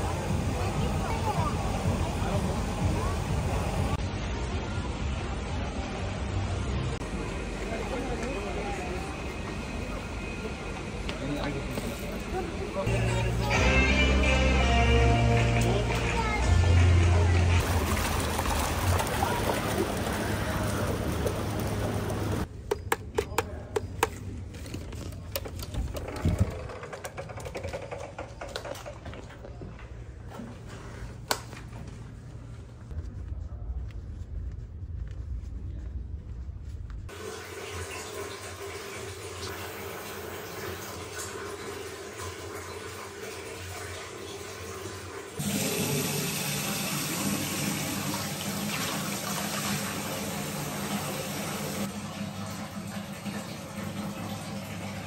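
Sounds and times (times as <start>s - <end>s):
running water rushing: 17.1s - 22.5s, 37.1s - 55.0s.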